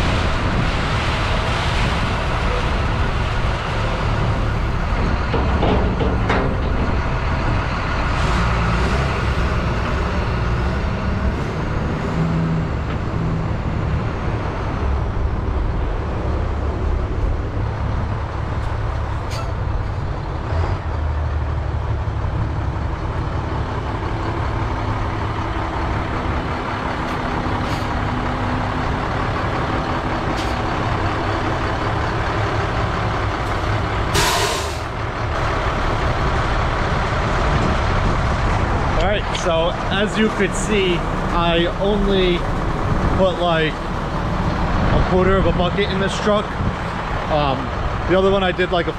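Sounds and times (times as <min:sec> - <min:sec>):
diesel engines running: 0:00.0 - 0:48.9
salt tipping into truck: 0:34.0 - 0:35.0
sharp burst of hiss: 0:34.2 - 0:34.9.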